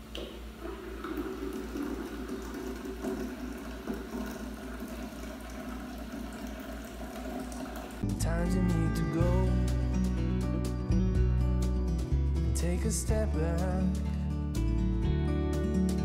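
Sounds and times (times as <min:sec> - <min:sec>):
juice pouring into jug: 0:00.1 - 0:08.0.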